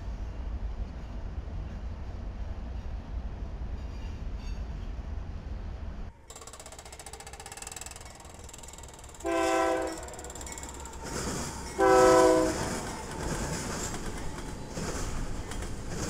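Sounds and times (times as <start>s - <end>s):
train rumbling past: 0.0s - 16.0s
locomotive air horn blasts: 9.2s - 10.3s, 11.8s - 12.8s.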